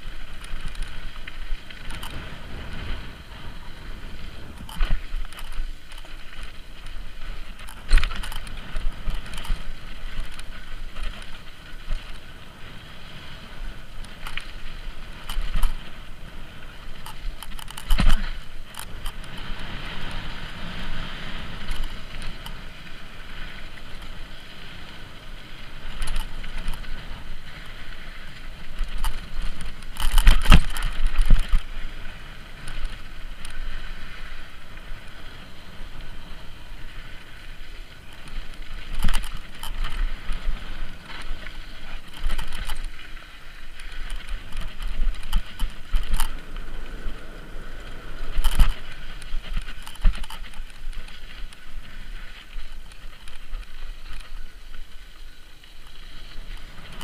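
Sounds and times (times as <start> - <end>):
bike knocking and rattling: 0.0 - 57.0
tyres rolling on dirt: 0.0 - 57.0.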